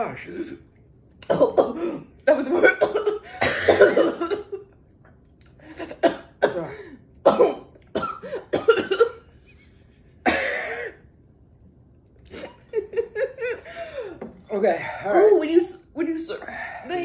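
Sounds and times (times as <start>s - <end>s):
person coughing: 1.2s - 2.1s, 2.7s - 4.7s, 5.8s - 9.2s, 10.2s - 11.0s.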